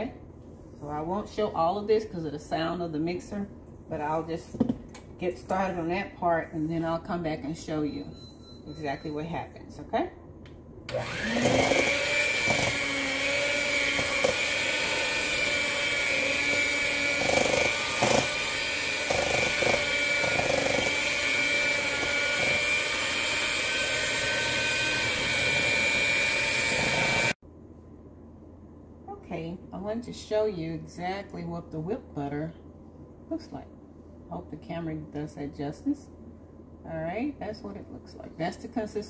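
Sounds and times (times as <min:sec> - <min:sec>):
electric hand mixer whining: 0:10.9 - 0:27.4.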